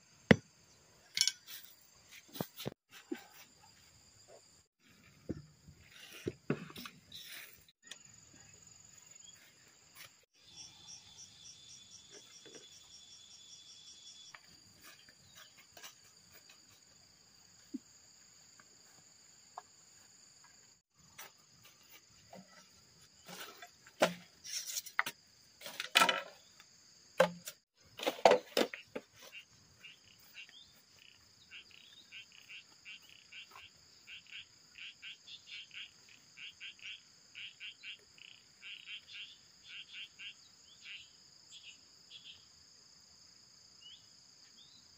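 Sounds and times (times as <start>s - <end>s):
insects chirring: 0.0s - 44.9s
machete knocking on bamboo: 27.2s - 27.5s.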